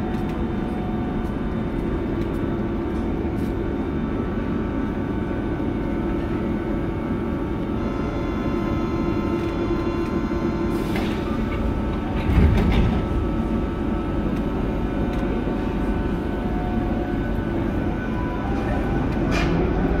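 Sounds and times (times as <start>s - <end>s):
train electric hum: 0.0s - 20.0s
train doors sliding shut: 9.4s - 13.7s, 18.1s - 20.0s.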